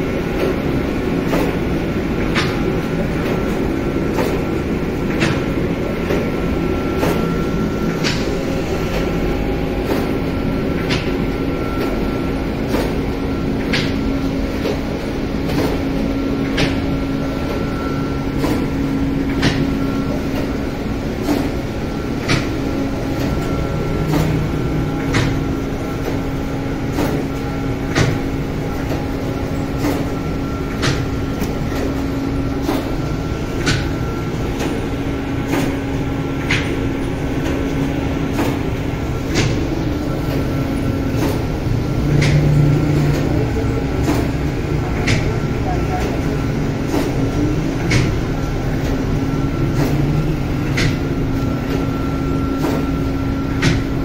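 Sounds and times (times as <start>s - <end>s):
machine rumble and hum: 0.0s - 54.0s
sharp mechanical clicks: 18.3s - 20.6s, 23.2s - 26.2s, 26.9s - 29.1s, 29.7s - 33.0s, 41.0s - 43.3s, 44.0s - 45.3s.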